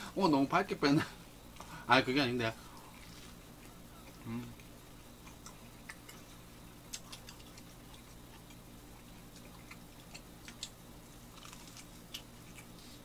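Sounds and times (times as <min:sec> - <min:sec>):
low steady hum: 0:00.0 - 0:13.0
toast being chewed: 0:02.6 - 0:13.0.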